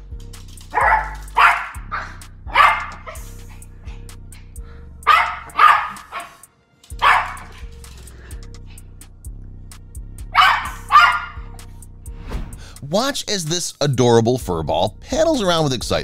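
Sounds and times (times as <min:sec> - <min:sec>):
small dog barking: 0:00.7 - 0:03.4, 0:05.1 - 0:06.4, 0:07.0 - 0:07.7, 0:10.3 - 0:11.6.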